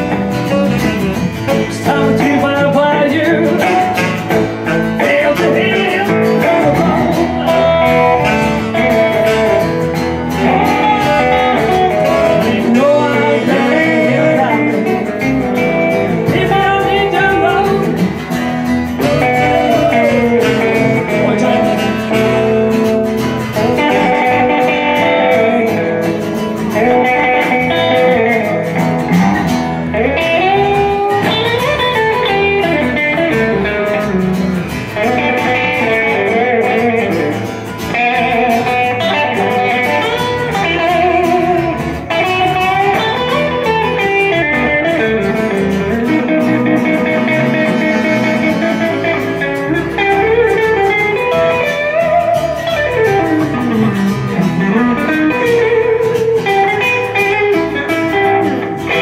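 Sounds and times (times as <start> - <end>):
acoustic guitar chords: 0.0 - 59.0
electric guitar blues solo: 0.0 - 59.0.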